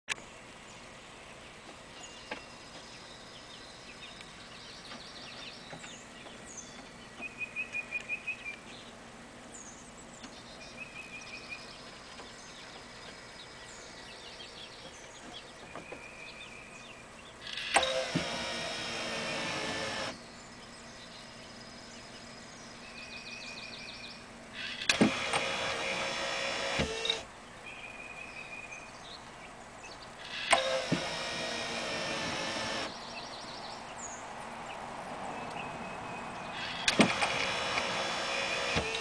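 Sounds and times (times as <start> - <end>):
small birds chirping and trilling: 0.1 - 39.0
antenna motor click: 17.5 - 20.2, 24.6 - 27.2, 30.2 - 32.9, 36.6 - 39.0.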